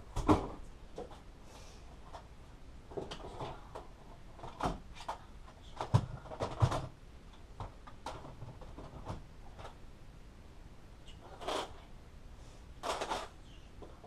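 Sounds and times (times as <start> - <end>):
rustling and scraping: 7.6 - 9.8, 11.1 - 11.9, 12.8 - 14.0.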